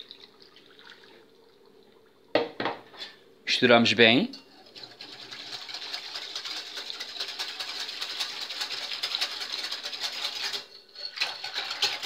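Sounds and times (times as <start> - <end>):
whisk scraping glass bowl: 4.3 - 12.0.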